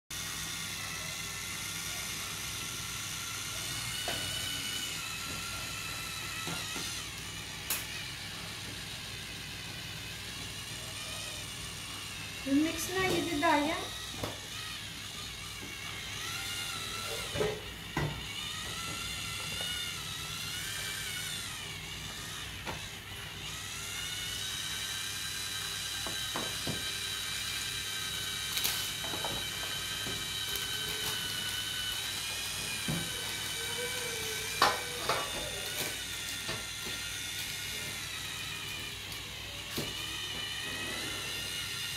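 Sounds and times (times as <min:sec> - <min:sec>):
handheld mixer whirring: 0:00.1 - 0:41.9
beater knocking on bowl: 0:12.7 - 0:13.6.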